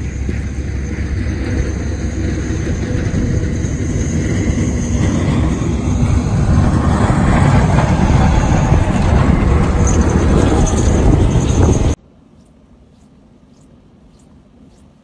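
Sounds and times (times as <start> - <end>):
strong wind buffeting microphone: 0.0 - 12.0.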